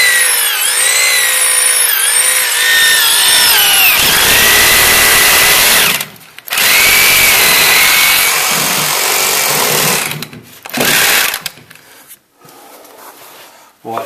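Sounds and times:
electric drill boring into concrete: 0:00.0 - 0:11.6.

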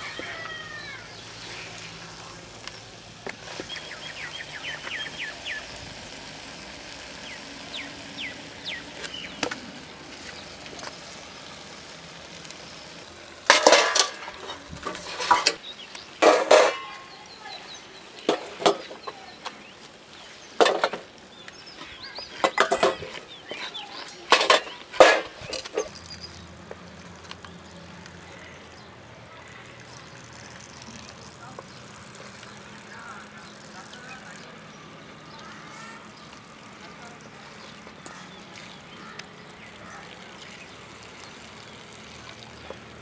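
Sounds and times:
wooden spoon scraping clay pot: 0:13.5 - 0:15.6.

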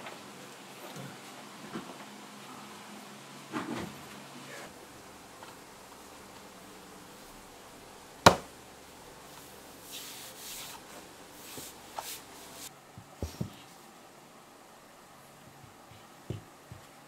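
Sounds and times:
floor planks knocking: 0:08.2 - 0:08.5
hands sliding over planks: 0:09.2 - 0:13.8.

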